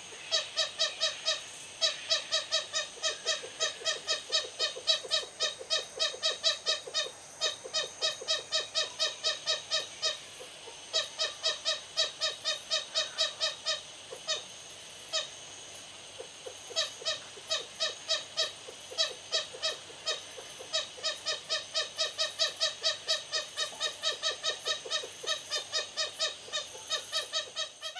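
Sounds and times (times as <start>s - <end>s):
bushbabies calling aggressively: 0.2s - 14.4s, 16.2s - 27.9s.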